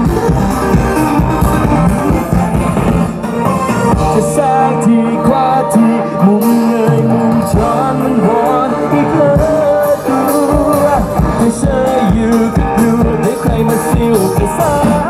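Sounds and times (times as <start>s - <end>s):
steady drum beat: 0.0s - 4.6s, 6.8s - 15.0s
live band with keyboards: 0.0s - 15.0s
man singing pop song: 3.9s - 15.0s.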